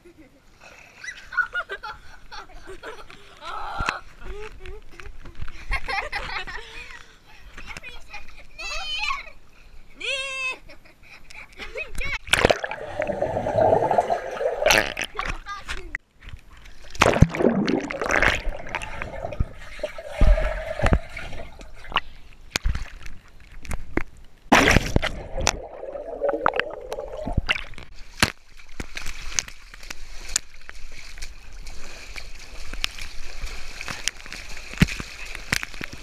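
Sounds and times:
water sloshing and bubbling: 12.2s - 36.0s
loud splash: 12.3s - 15.1s, 17.0s - 21.6s, 24.5s - 27.8s
feet kicking water: 12.3s - 15.4s, 16.7s - 23.2s, 24.5s - 36.0s.

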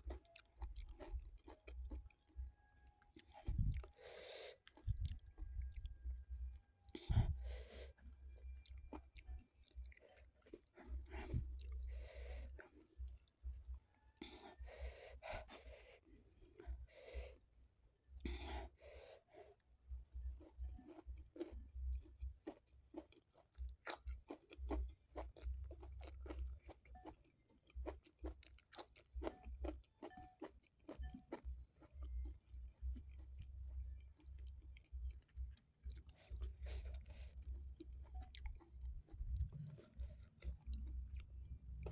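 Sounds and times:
close chewing mouth clicks: 3.1s - 6.0s, 20.9s - 31.4s.

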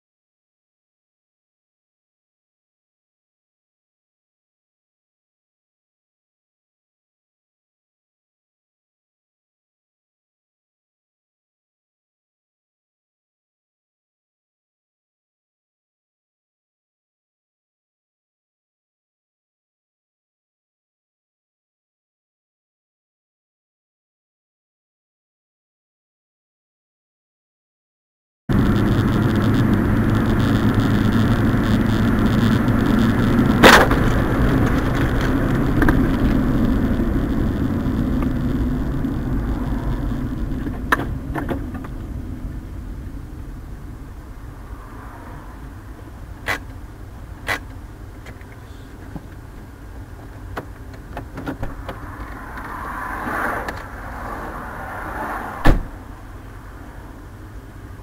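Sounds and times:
car road and engine noise: 28.5s - 58.0s.

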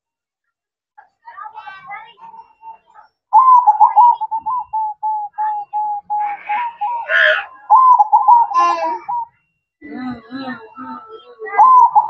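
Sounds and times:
dove cooing in clipped notes: 3.4s - 7.0s, 7.7s - 9.2s.

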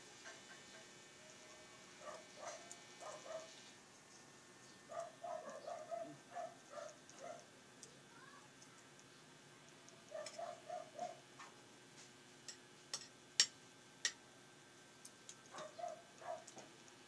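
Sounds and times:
eating clicks and smacks: 15.0s - 17.0s.

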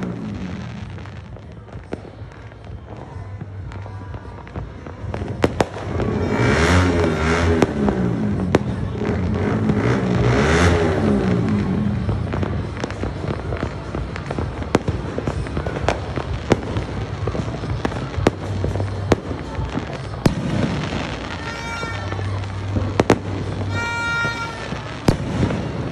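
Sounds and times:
fireworks bangs and pops: 0.0s - 25.9s.

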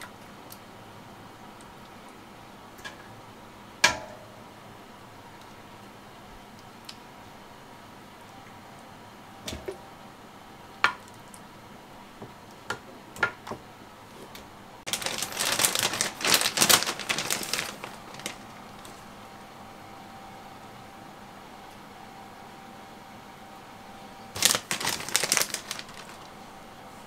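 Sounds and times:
packaging crinkling: 14.9s - 19.0s, 24.4s - 26.4s.

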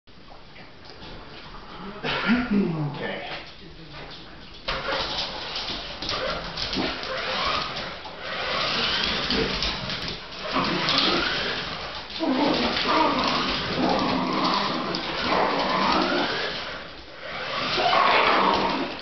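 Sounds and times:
toy car electric motor whine: 6.1s - 19.0s.

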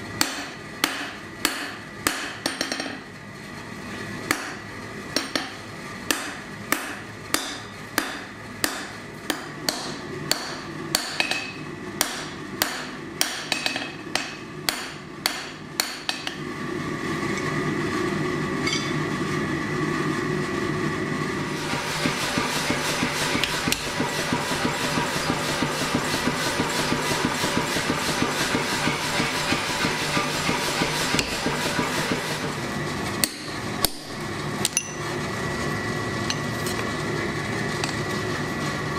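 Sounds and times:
hammer striking metal on anvil: 0.2s - 3.0s, 4.3s - 16.4s, 18.6s - 19.0s.

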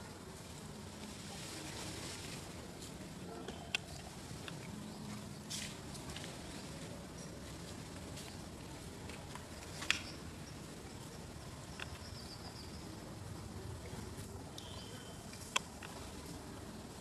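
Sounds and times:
faint high-pitched chirps: 14.6s - 15.3s.

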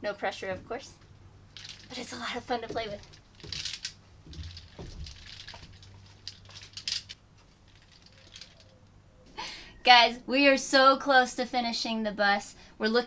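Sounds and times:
mesh door curtain rustling: 1.5s - 8.8s.

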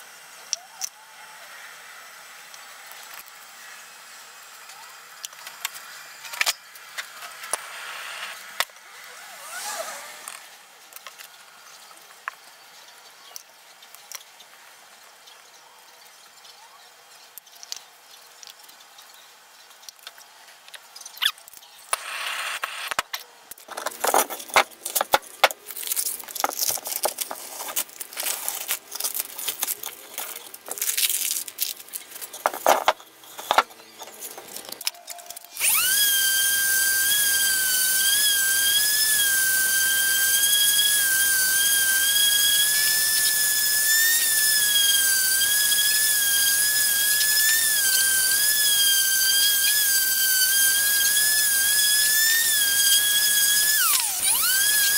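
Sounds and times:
orbital sander whining: 7.4s - 10.5s, 35.5s - 54.9s
plastic and tape crinkling: 23.5s - 35.6s.

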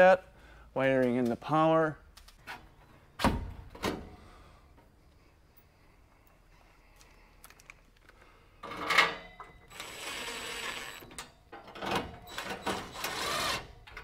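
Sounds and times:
impact driver driving screw: 12.4s - 13.7s.

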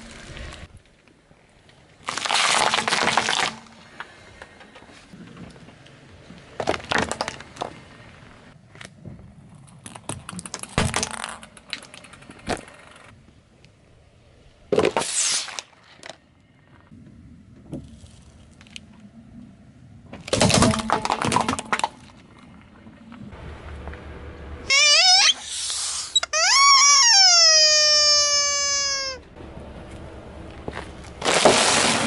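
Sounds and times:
car tyre rolling on asphalt: 0.0s - 2.1s, 3.8s - 14.8s, 21.0s - 24.7s, 29.3s - 31.8s
juice carton squashed and bursting: 2.0s - 3.7s, 31.2s - 32.0s.

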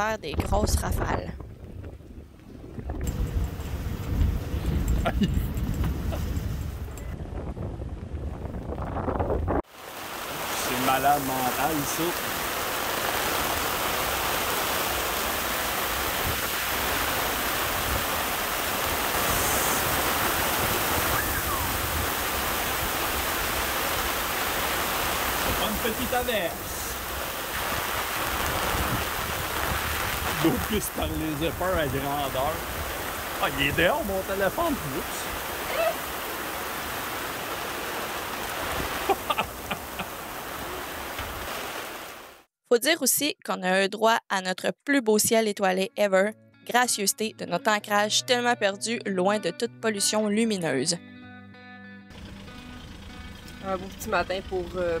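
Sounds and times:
gusting wind: 0.0s - 42.5s
rain pelting water and canvas: 0.8s - 42.5s.

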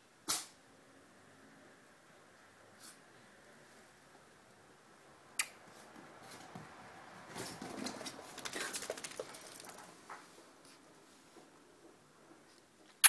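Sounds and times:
clicks and rustling: 7.3s - 10.2s.

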